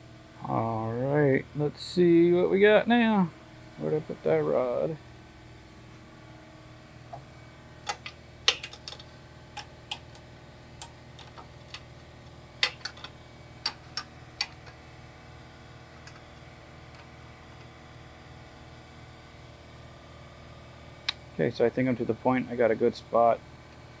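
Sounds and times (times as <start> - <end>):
faint steady hum: 0.0 - 24.0
metal clicks and taps: 7.9 - 10.2.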